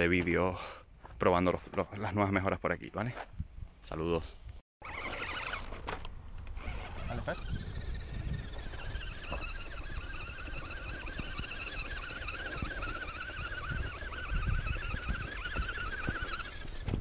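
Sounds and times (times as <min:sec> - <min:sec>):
electric motor whining: 0:04.8 - 0:17.0
wind on microphone: 0:06.6 - 0:17.0.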